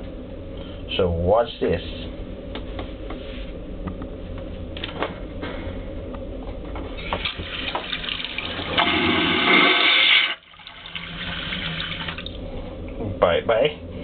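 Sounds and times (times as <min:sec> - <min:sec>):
vacuum toilet flushing: 0:07.1 - 0:12.4.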